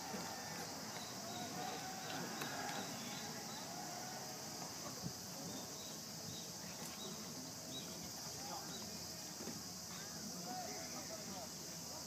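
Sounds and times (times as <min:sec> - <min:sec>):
high-pitched insect drone: 0:00.0 - 0:09.2
faint distant voices: 0:00.0 - 0:12.0.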